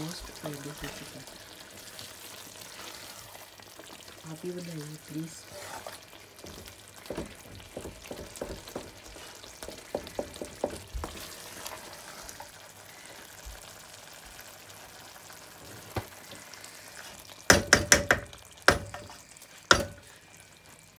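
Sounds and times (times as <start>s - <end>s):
low sizzle: 0.0s - 20.9s
spatula stirring curry in pot: 0.2s - 4.2s, 5.4s - 13.4s.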